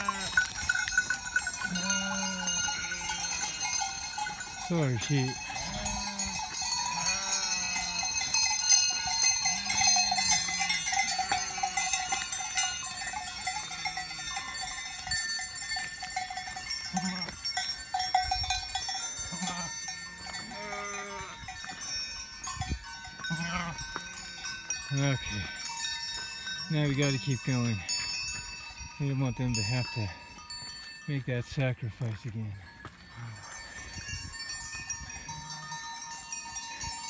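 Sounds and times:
livestock calls: 0:00.0 - 0:12.3, 0:16.9 - 0:17.4, 0:19.2 - 0:21.5, 0:23.2 - 0:24.0
cowbells clanking: 0:00.0 - 0:37.0.

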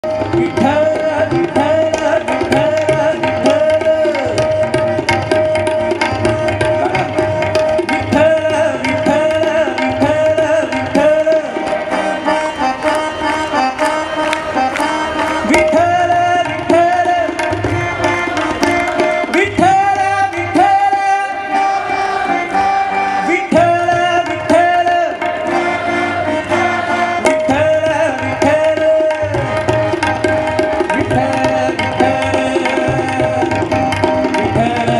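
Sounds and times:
tabla strokes: 0:00.0 - 0:34.9
man singing long notes: 0:08.0 - 0:29.7.

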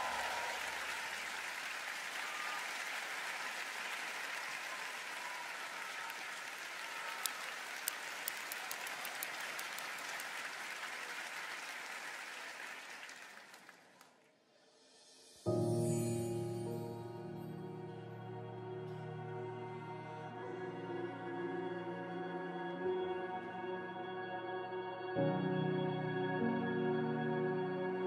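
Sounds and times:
audience applauding: 0:00.0 - 0:14.3.

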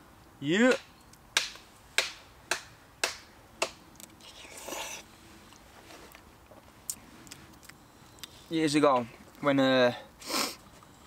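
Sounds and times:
rustling: 0:04.2 - 0:09.4.

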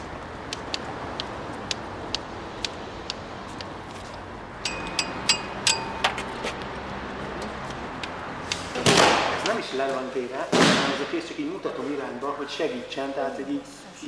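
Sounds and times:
light ticking taps: 0:00.4 - 0:06.7, 0:07.4 - 0:08.6
metallic clinks: 0:04.6 - 0:06.7.

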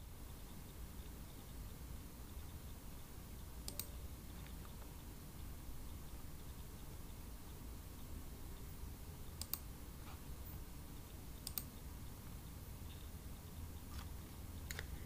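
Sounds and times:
low steady hum: 0:00.0 - 0:15.0
sharp clicks: 0:03.6 - 0:05.0, 0:09.3 - 0:09.7, 0:11.0 - 0:11.9.

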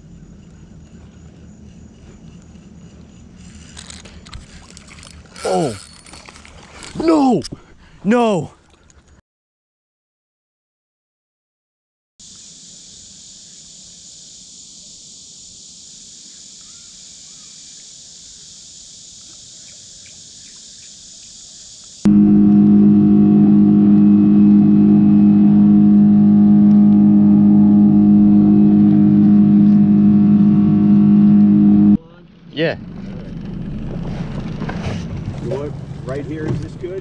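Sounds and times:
steady high hiss: 0:12.2 - 0:22.0
motorboat engine running: 0:22.1 - 0:37.0.

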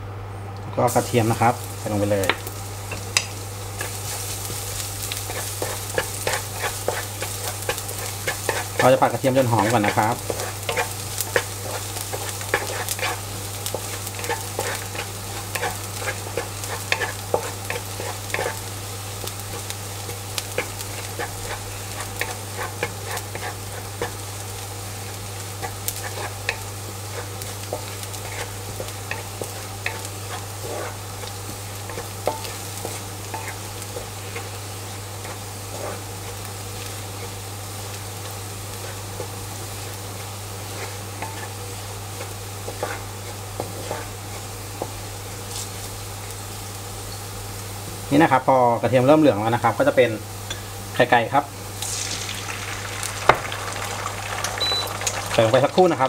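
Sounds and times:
garlic sizzling in oil: 0:00.8 - 0:56.0
wooden spatula scraping a pan: 0:03.8 - 0:18.7, 0:19.3 - 0:24.3, 0:25.1 - 0:37.4, 0:38.2 - 0:45.7.

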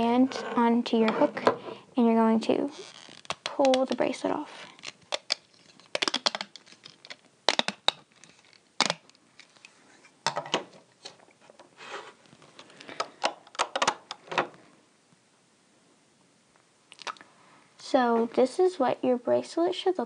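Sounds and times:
plastic loom clicks and snaps: 0:04.8 - 0:08.0.

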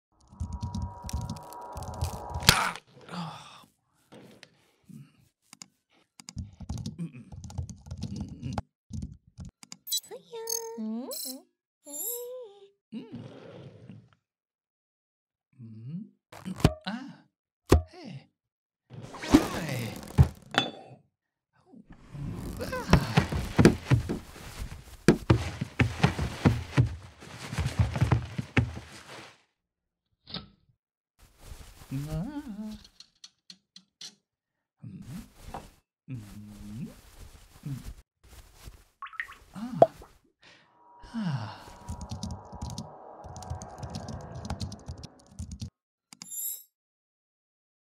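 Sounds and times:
keyboard typing: 0:00.2 - 0:02.2, 0:41.8 - 0:45.7
short voice-like gliding sound: 0:39.8 - 0:45.3.

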